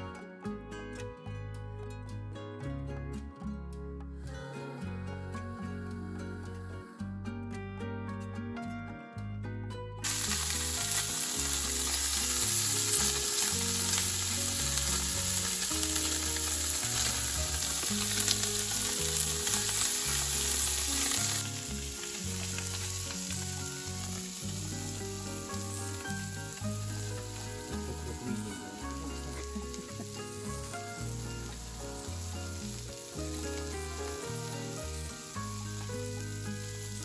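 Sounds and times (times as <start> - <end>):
fish sizzling on griddle: 10.0 - 37.0.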